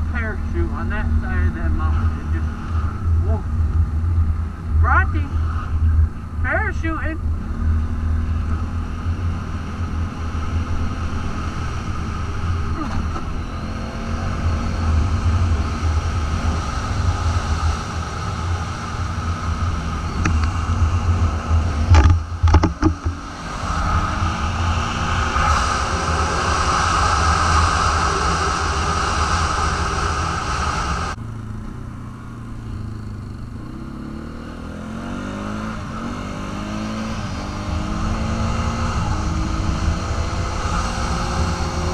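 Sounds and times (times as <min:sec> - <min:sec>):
atv engine running and revving: 0:00.0 - 0:41.9.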